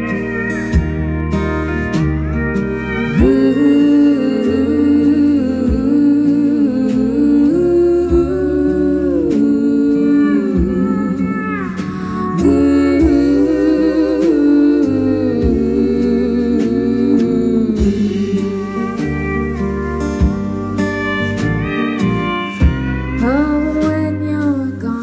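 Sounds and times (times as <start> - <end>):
live country band playing: 0.0 - 25.0
woman singing with vibrato: 3.1 - 20.1, 23.2 - 25.0
steady drum beat: 10.6 - 24.0.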